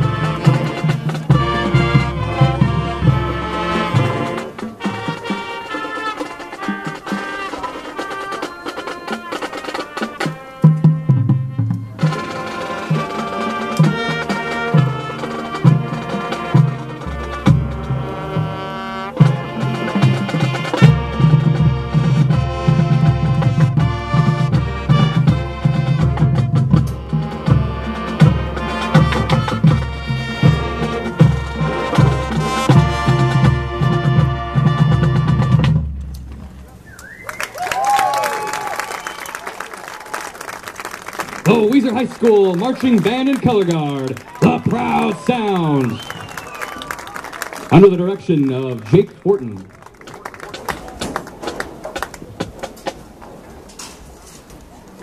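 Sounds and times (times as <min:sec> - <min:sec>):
brass and woodwinds chords: 0:00.0 - 0:40.0, 0:41.4 - 0:49.6
marching band playing: 0:00.0 - 0:55.0
drum hits: 0:09.6 - 0:36.8.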